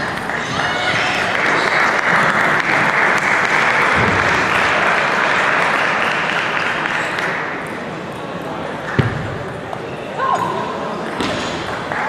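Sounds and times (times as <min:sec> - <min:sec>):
hand-clapping applause: 0:00.0 - 0:07.6.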